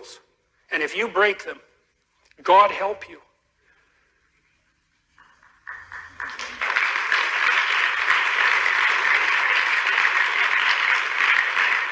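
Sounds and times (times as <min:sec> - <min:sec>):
crowd applauding: 0:05.2 - 0:11.9.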